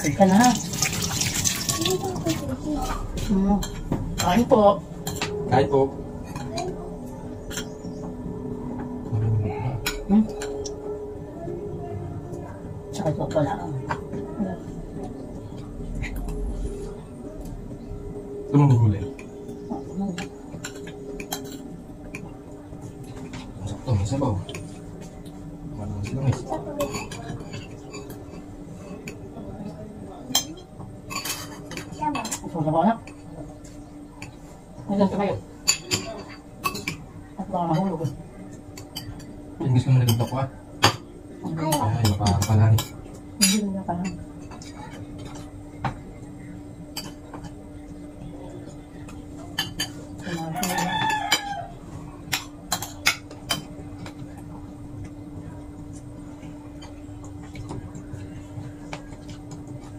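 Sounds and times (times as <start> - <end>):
steady low hum: 0.0 - 59.9
rooster crowing: 50.2 - 52.0.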